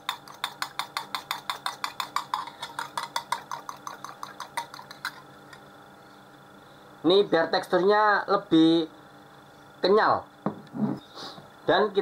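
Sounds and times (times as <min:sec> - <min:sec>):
fork tapping glass bowl: 0:00.0 - 0:05.2.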